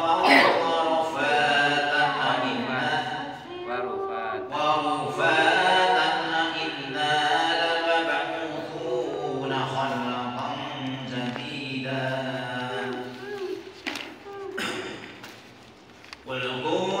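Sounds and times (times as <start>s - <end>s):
man chanting melodically: 0.0s - 13.2s.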